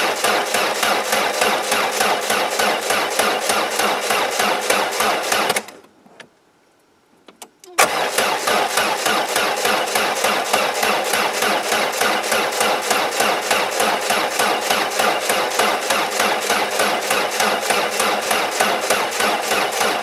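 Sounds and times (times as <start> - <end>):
car engine cranking without starting: 0.0 - 5.9, 7.7 - 20.0.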